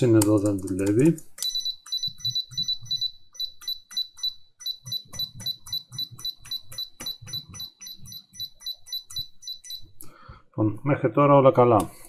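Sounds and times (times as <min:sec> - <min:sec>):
laptop keys clicking: 0:00.0 - 0:04.1
short high beeps: 0:01.5 - 0:09.8.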